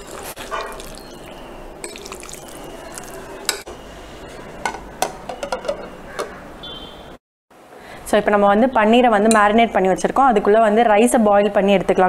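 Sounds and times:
thick mixture stirred in bowl: 0:00.0 - 0:03.7.

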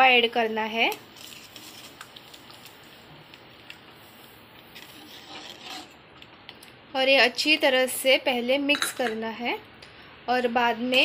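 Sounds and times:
water boiling with bubbling hiss: 0:00.5 - 0:06.0
semolina poured and stirred: 0:01.1 - 0:06.3.

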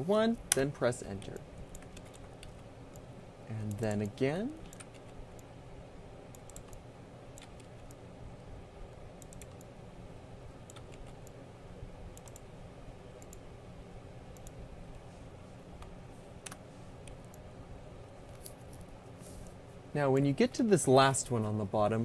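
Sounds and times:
steady low hum: 0:00.0 - 0:22.0
computer mouse and keyboard clicks: 0:00.5 - 0:05.5, 0:06.3 - 0:08.0, 0:09.2 - 0:09.7, 0:10.6 - 0:11.4, 0:12.1 - 0:12.5, 0:13.2 - 0:13.5, 0:15.8 - 0:17.4.

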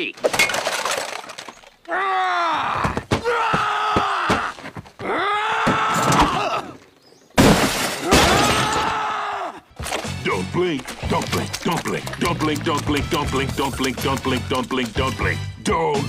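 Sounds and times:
cartoon character screaming: 0:08.1 - 0:09.6.

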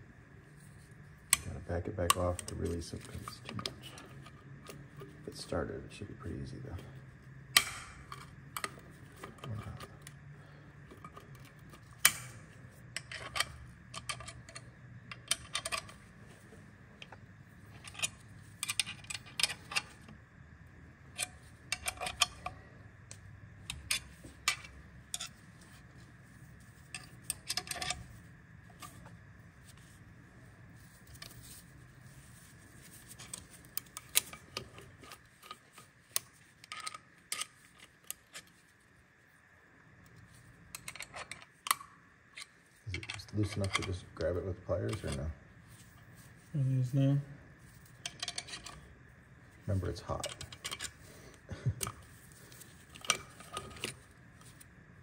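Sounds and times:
low steady hum: 0:00.0 - 0:55.0
metallic clicks of hand tools: 0:11.0 - 0:16.0, 0:21.1 - 0:22.6.

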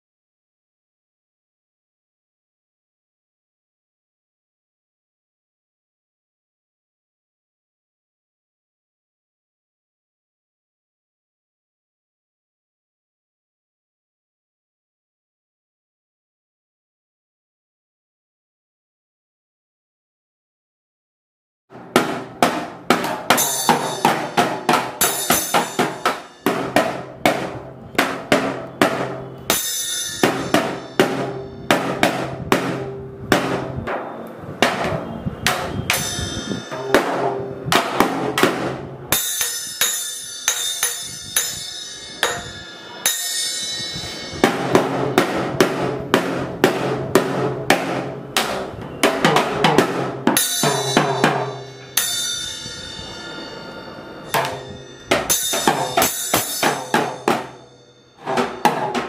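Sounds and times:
toy drum hits: 0:21.8 - 0:53.1, 0:54.3 - 0:59.0
small cymbal ringing: 0:23.3 - 0:32.1, 0:35.5 - 0:37.6, 0:39.1 - 0:45.2, 0:50.4 - 0:59.0.

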